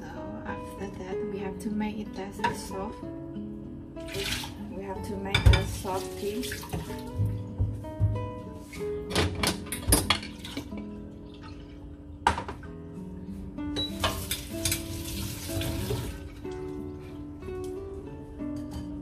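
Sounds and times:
background music: 0:00.0 - 0:19.0
dishes knocking: 0:05.4 - 0:05.8, 0:06.8 - 0:08.4, 0:09.1 - 0:10.8, 0:12.2 - 0:12.7
bowl set down on cutting board: 0:12.2 - 0:12.7.

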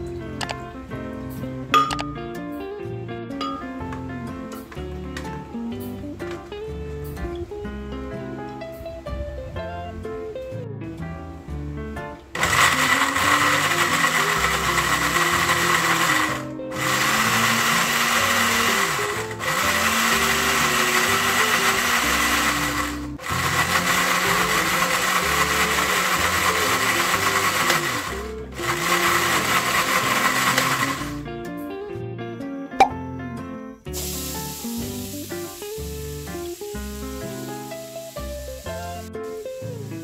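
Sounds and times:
background music: 0:00.0 - 0:40.0
blender grinding with whine: 0:12.4 - 0:31.2.

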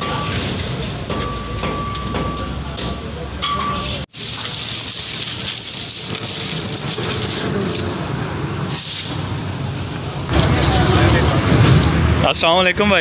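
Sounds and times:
roadside traffic noise: 0:00.0 - 0:13.0
indistinct voices: 0:10.3 - 0:13.0.

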